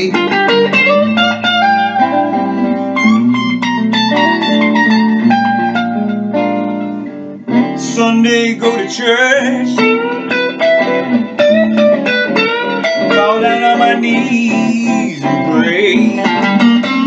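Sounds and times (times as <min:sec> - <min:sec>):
person singing blues: 0:00.0 - 0:05.3, 0:07.1 - 0:17.0
blues guitar licks: 0:00.0 - 0:17.0.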